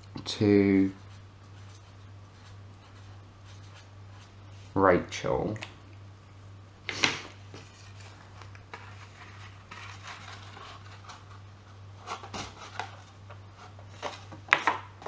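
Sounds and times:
steady low hum: 0:00.0 - 0:15.0
paper rustling: 0:07.5 - 0:14.7.

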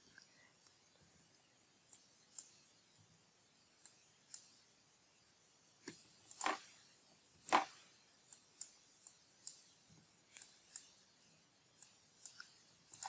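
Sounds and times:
keyboard and mouse clicks: 0:05.8 - 0:06.7, 0:07.5 - 0:09.7, 0:11.8 - 0:13.0.

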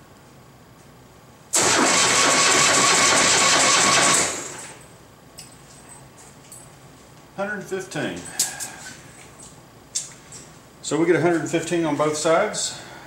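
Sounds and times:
electric starter cranking engine: 0:01.5 - 0:04.8.

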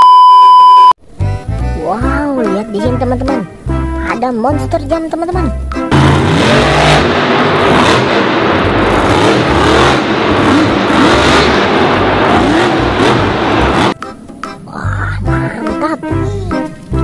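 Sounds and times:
truck engine revving hard: 0:05.9 - 0:14.0.

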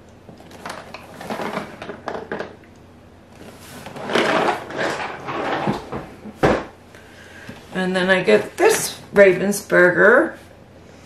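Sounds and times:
box scraping across table: 0:03.5 - 0:06.0.

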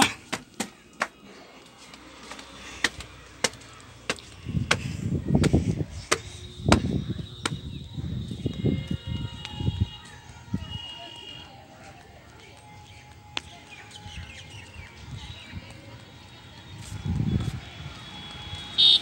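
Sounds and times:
footsteps on concrete: 0:00.0 - 0:18.6
wind rumbling on microphone: 0:04.4 - 0:10.8, 0:16.6 - 0:18.6.

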